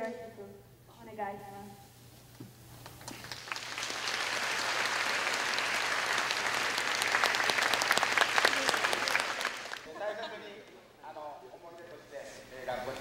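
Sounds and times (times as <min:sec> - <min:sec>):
large audience clapping: 0:02.9 - 0:09.9.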